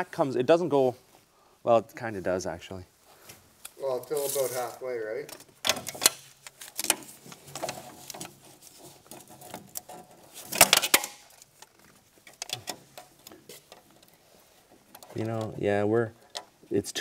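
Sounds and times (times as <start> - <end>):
light clicks and metal rattles: 5.2 - 16.6.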